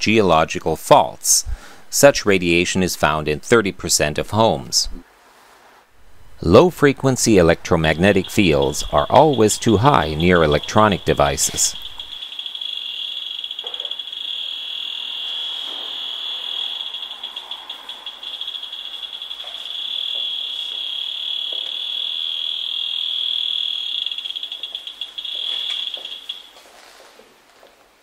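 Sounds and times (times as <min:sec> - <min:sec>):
high-pitched buzzing tone: 0:06.0 - 0:26.5.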